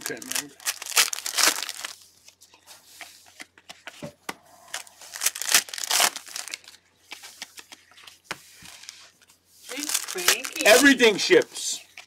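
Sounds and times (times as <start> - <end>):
foil wrappers crinkling and tearing: 0.0 - 2.4, 4.7 - 8.0, 8.6 - 12.0.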